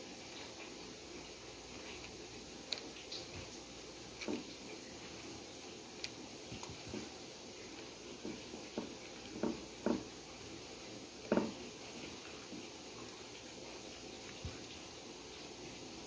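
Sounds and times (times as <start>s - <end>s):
light knocks and handling sounds: 4.2s - 5.2s, 11.2s - 12.7s.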